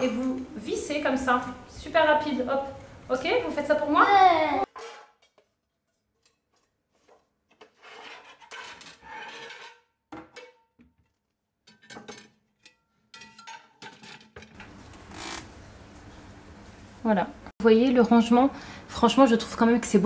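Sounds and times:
metal pans clinking and scraping: 4.6 - 14.8.

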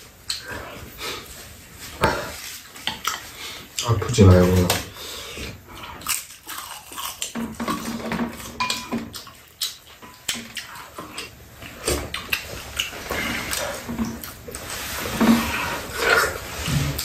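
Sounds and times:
chewing and mouth noises: 5.7 - 14.8.

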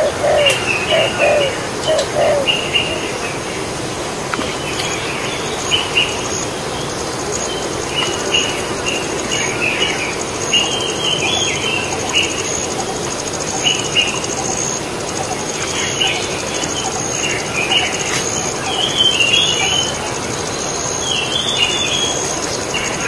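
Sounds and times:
dove cooing: 0.0 - 3.5
birds chirping: 0.0 - 23.0
high insect whine: 0.0 - 23.0.

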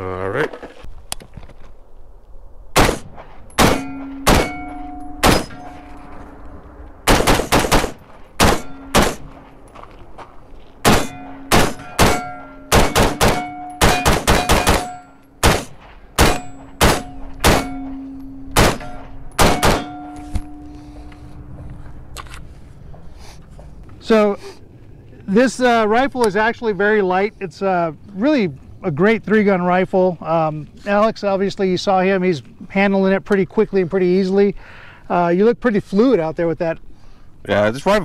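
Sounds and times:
rifle shots: 2.7 - 6.0, 7.0 - 9.5, 10.8 - 20.1
steel targets ringing: 3.5 - 6.4, 7.9 - 9.6, 10.8 - 21.4.

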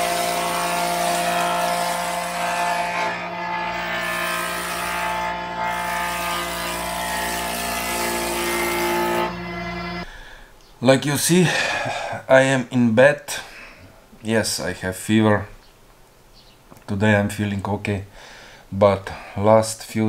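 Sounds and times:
jointer-planer cutting wood: 0.0 - 10.1.

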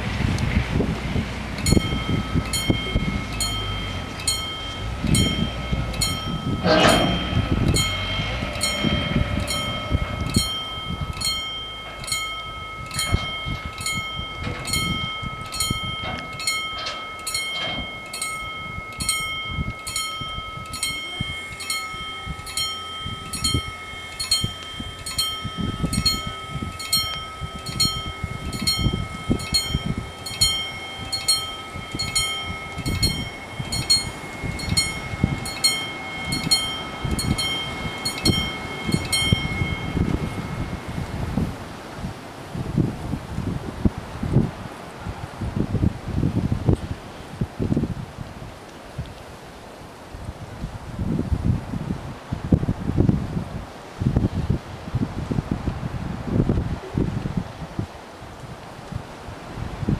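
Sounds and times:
barrier motor hum: 0.0 - 42.5
level crossing warning bells: 1.4 - 44.3.

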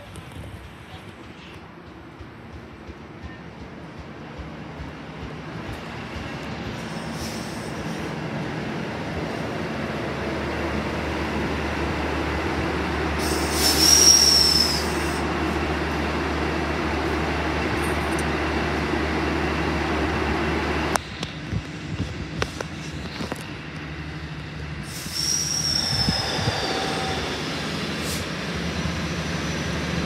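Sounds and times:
diesel railcar engine drone: 0.0 - 30.0
rail noise: 0.0 - 30.0
high-pitched wheel squeal: 13.2 - 15.2, 25.0 - 27.7.

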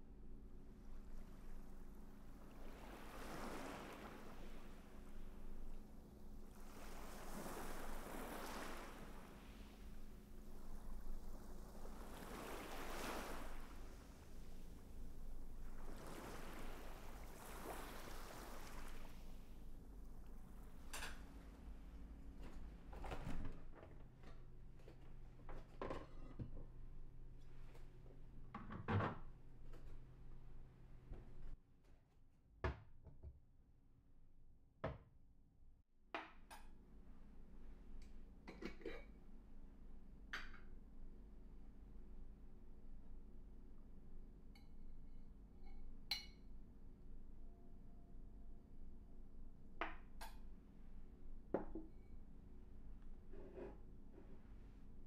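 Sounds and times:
low steady hum: 0.0 - 31.6
ocean surf waves: 2.4 - 5.7, 6.4 - 20.9.

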